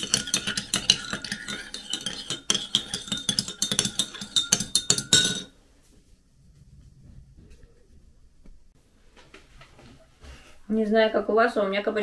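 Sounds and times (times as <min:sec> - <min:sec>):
teaspoon clinking in a ceramic mug: 0:00.0 - 0:05.5.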